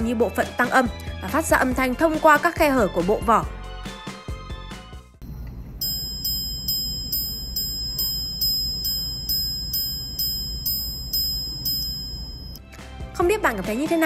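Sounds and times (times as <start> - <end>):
watch chiming on gongs: 5.8 - 12.6.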